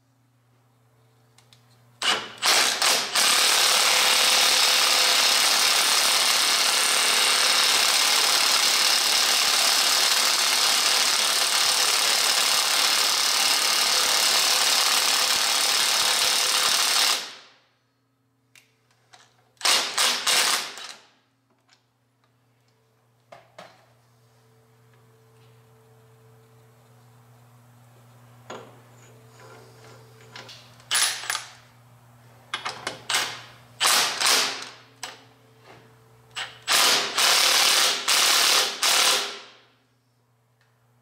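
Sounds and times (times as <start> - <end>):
impact wrench hammering: 19.6 - 21.0.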